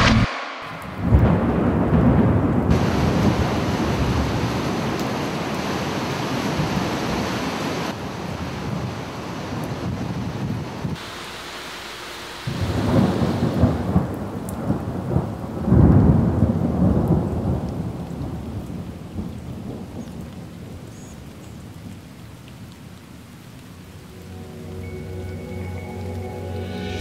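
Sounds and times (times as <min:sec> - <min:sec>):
thunder rolling: 0:00.0 - 0:05.3, 0:12.5 - 0:19.8
rain hissing: 0:00.0 - 0:27.0.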